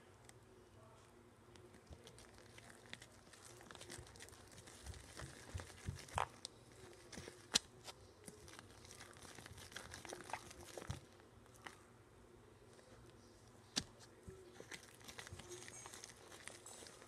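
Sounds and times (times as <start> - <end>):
slime squished by hand: 1.8 - 11.8.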